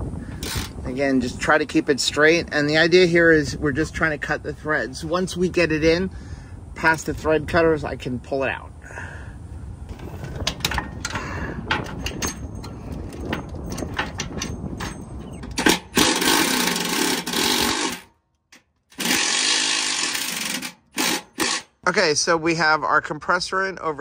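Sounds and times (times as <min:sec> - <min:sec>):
bolt grinding as it cuts threads: 0:00.4 - 0:00.8, 0:10.0 - 0:21.8
hand ratchet clicking: 0:00.4 - 0:00.8, 0:10.4 - 0:21.7
cordless power tool running: 0:16.0 - 0:18.0, 0:19.0 - 0:21.7.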